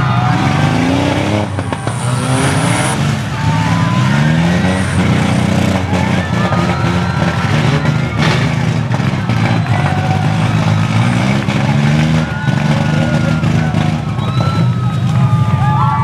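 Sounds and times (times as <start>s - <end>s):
whine: 0.0s - 11.0s
car engines revving hard: 0.0s - 16.0s.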